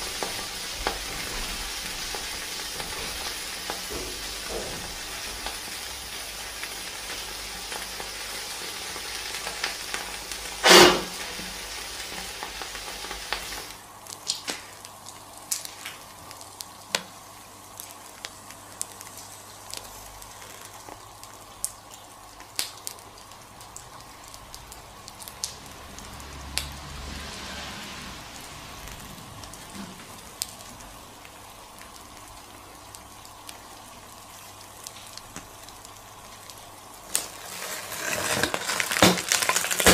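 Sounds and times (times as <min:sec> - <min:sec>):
crackles and ticks: 0:00.0 - 0:10.6, 0:11.2 - 0:26.8, 0:28.9 - 0:39.9
lava sizzling and hissing: 0:00.0 - 0:39.9
loud sharp pop: 0:10.6 - 0:11.2.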